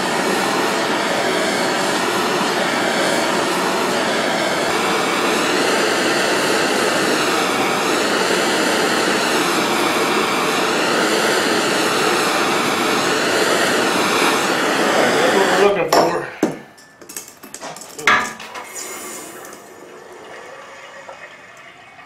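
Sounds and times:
propane torch hissing: 0:00.0 - 0:16.6, 0:17.5 - 0:22.0.

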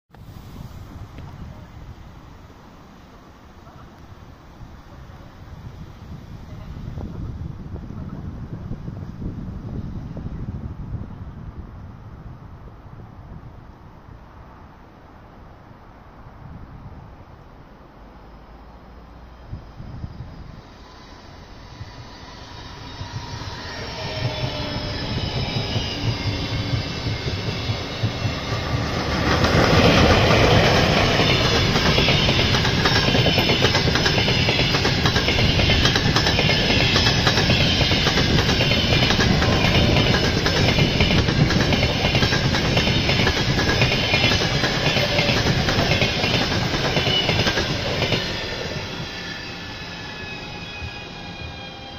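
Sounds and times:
train passing at speed: 0:00.1 - 0:51.9
electric train passing: 0:00.2 - 0:51.9
train wheels clickety-clack: 0:22.8 - 0:49.3.

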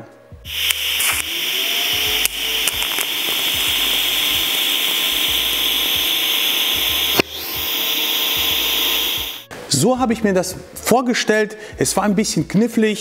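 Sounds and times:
welder click: 0:00.5 - 0:09.4
welding arc hissing: 0:00.5 - 0:09.5.

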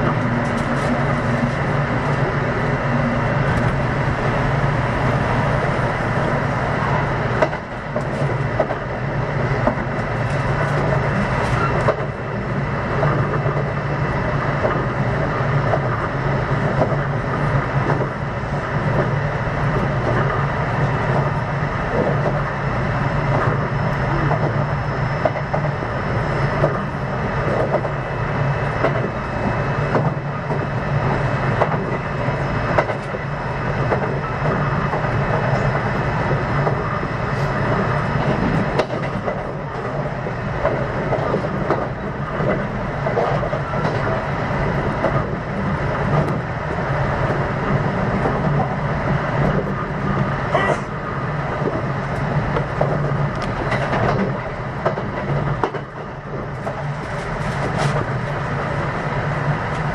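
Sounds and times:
train rumble from inside: 0:00.0 - 0:59.9
wheels clicking over rail joints: 0:51.5 - 0:58.4.

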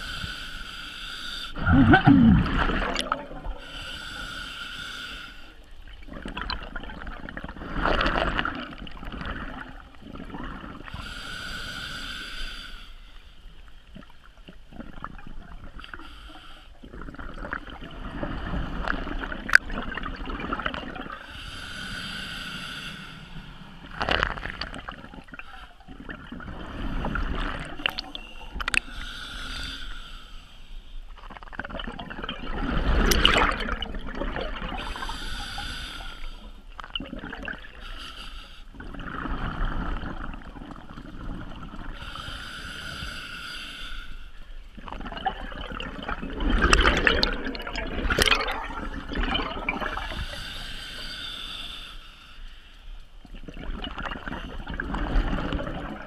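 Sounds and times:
regulator hissing inhales: 0:00.0 - 0:01.6, 0:03.6 - 0:05.6, 0:11.0 - 0:13.3, 0:21.3 - 0:23.6, 0:28.8 - 0:30.9, 0:34.8 - 0:36.6, 0:42.0 - 0:44.5, 0:50.1 - 0:52.9
gurgling exhaled bubbles: 0:01.6 - 0:03.7, 0:05.9 - 0:11.1, 0:16.8 - 0:21.3, 0:23.7 - 0:28.8, 0:31.3 - 0:35.2, 0:36.9 - 0:37.8, 0:38.8 - 0:42.0, 0:44.8 - 0:50.4, 0:53.3 - 0:56.0.

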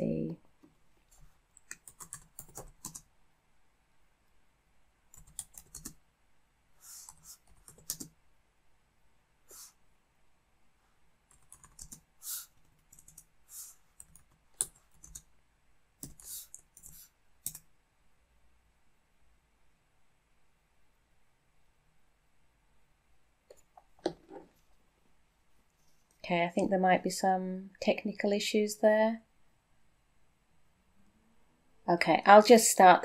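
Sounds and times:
computer keyboard typing: 0:01.6 - 0:03.1, 0:05.1 - 0:06.0, 0:07.1 - 0:08.1, 0:11.3 - 0:13.3, 0:14.0 - 0:15.3, 0:16.0 - 0:17.6.

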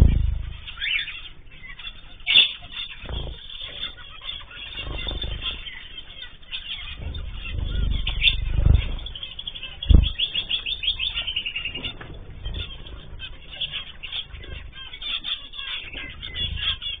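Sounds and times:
loud low flutter or bump: 0:00.0 - 0:01.7, 0:04.6 - 0:14.9
finches chirping: 0:00.0 - 0:17.0
wings flapping: 0:00.0 - 0:17.0.

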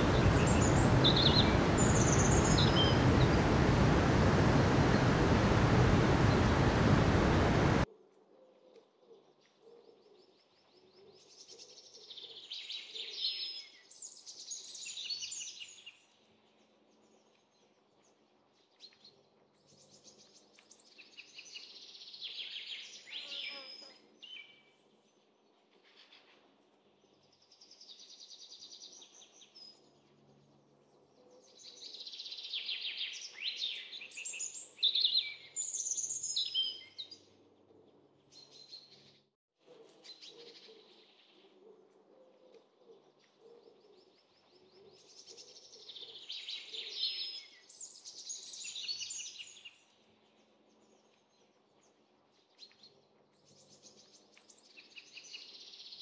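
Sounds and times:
small songbirds singing: 0:00.0 - 0:07.8.

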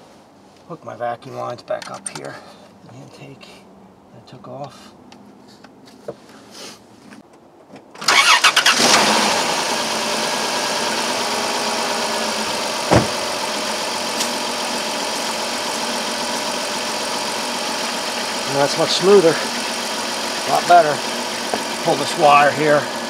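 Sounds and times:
car engine cranking and idling: 0:08.0 - 0:23.0.

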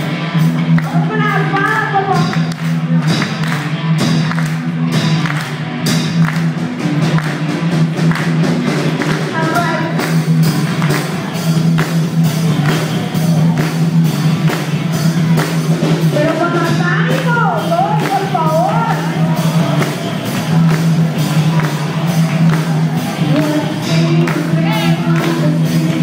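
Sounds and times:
live rock band playing: 0:00.0 - 0:26.0
woman singing: 0:23.3 - 0:26.0.

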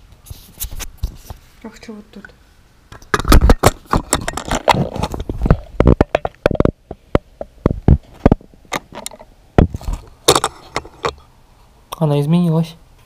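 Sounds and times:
camera handling knocks and rubbing: 0:03.0 - 0:11.2.

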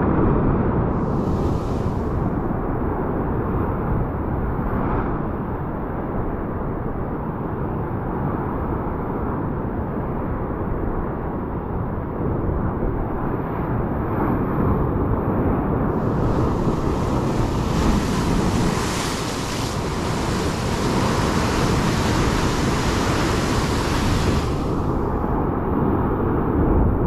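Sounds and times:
wind rumbling on microphone: 0:00.0 - 0:27.0
ocean surf breaking over rocks: 0:01.0 - 0:03.0, 0:15.9 - 0:25.6.

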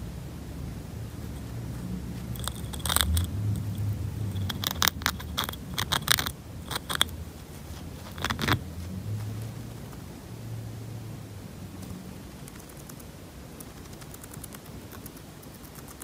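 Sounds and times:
steady low hum: 0:00.0 - 0:16.0
chinchilla gnawing on wood: 0:02.1 - 0:07.1, 0:08.0 - 0:08.6, 0:12.4 - 0:16.0.

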